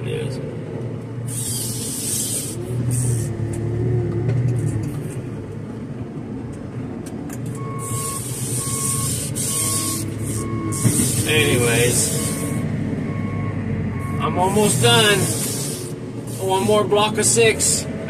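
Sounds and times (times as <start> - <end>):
diesel engine running under load: 0.0 - 18.0
hydraulic whine: 1.2 - 5.2, 7.6 - 13.3
hiss bursts: 1.3 - 3.3, 7.8 - 12.6, 15.0 - 16.7
reversing alarm beeping: 7.6 - 15.3.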